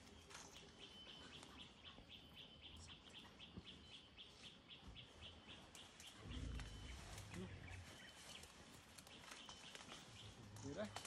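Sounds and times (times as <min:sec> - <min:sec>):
faint forest ambience: 0:00.0 - 0:11.0.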